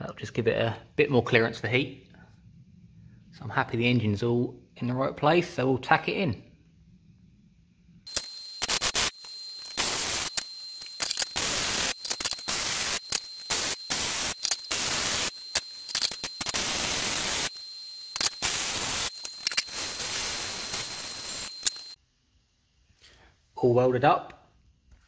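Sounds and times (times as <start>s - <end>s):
high whine of welding arc: 8.1s - 22.0s
welder arc crackling: 8.1s - 22.0s.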